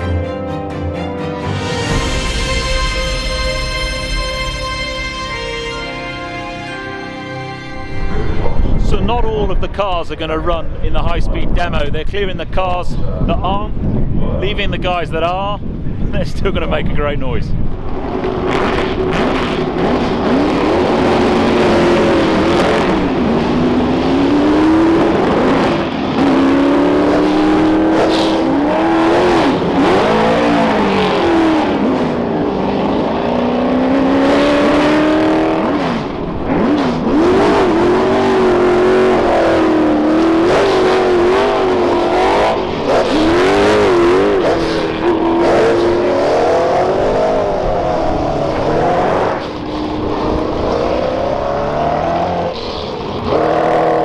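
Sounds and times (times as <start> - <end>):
racing car engines revving: 17.6 - 54.0.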